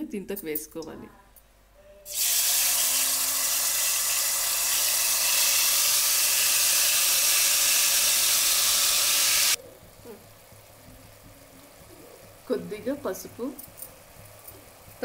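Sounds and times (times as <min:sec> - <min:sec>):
oil sizzling loudly: 0:02.1 - 0:15.0.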